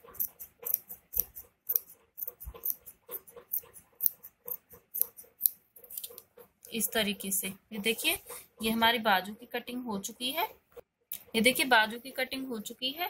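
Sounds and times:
scissors snipping fabric: 0:00.0 - 0:07.0.

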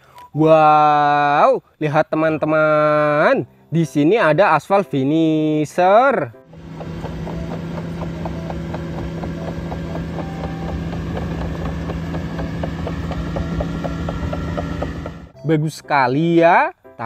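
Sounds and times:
diesel engine hum: 0:06.5 - 0:15.4.

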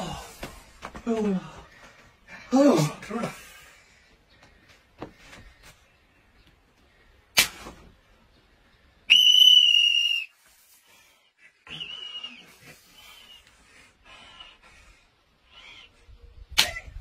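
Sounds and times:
shrill whistle: 0:09.1 - 0:10.5, 0:11.6 - 0:12.6.

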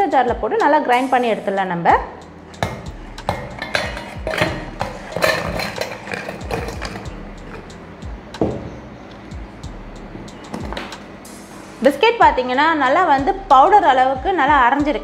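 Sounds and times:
biscuits clinking in metal jar: 0:03.3 - 0:07.6.

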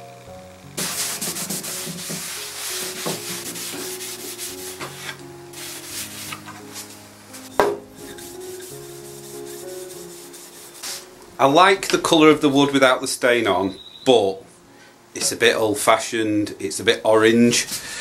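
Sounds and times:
cloth rubbing on wood: 0:00.8 - 0:07.0, 0:08.0 - 0:11.1
sharp knock: 0:07.6 - 0:07.9.

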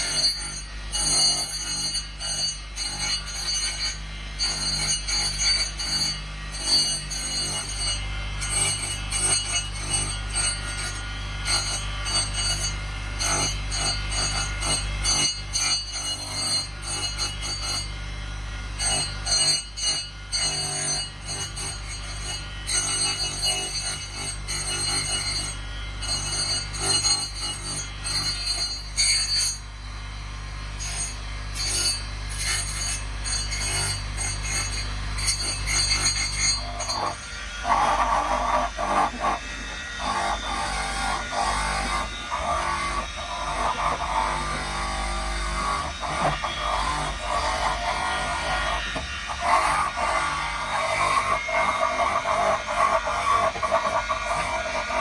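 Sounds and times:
wood rasping on sanding disc: 0:30.9 - 0:55.0
electric motor humming: 0:36.6 - 0:55.0
wood rasping against sanding disc: 0:45.8 - 0:55.0.

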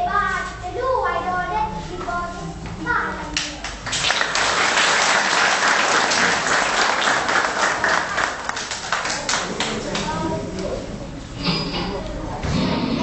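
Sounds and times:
class applauding: 0:03.6 - 0:10.2.

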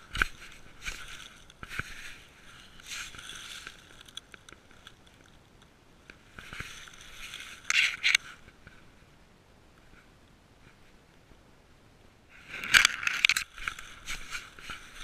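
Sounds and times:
grass and leaves scraping and crackling: 0:00.0 - 0:09.0, 0:12.3 - 0:15.0.

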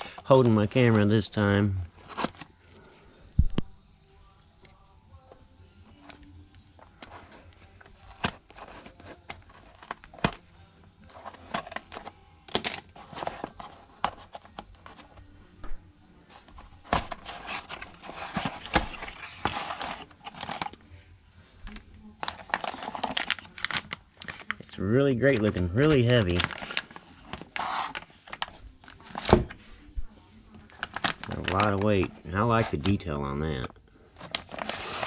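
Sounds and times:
plastic packing crinkling: 0:21.7 - 0:29.5, 0:30.6 - 0:33.0, 0:34.2 - 0:35.0
packing tape peeled and torn: 0:22.2 - 0:24.6.

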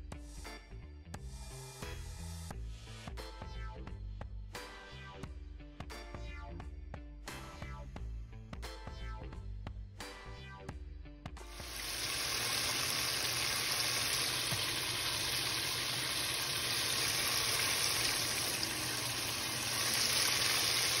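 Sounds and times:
chicken sizzling in deep fryer: 0:11.5 - 0:21.0.

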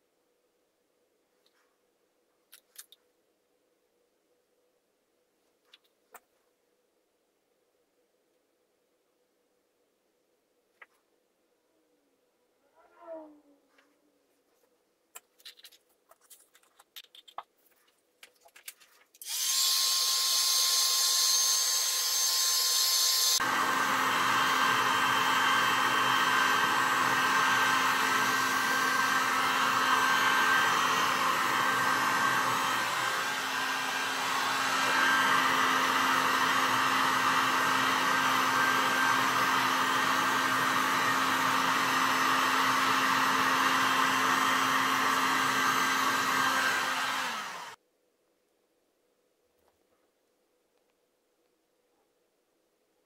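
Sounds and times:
heat gun blowing hot air: 0:19.2 - 0:47.8.

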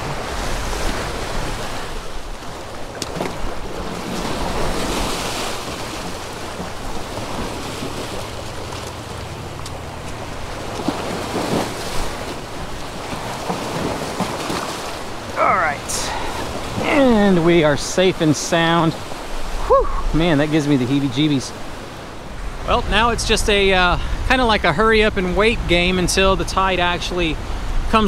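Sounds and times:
surf washing against rocks: 0:00.0 - 0:28.0
faint clicks: 0:09.6 - 0:10.2
wind on microphone: 0:18.9 - 0:20.4, 0:22.0 - 0:28.0.

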